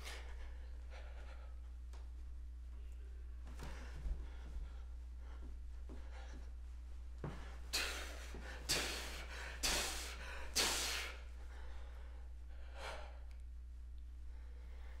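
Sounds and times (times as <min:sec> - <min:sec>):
person breathing out hard: 0:07.3 - 0:13.3.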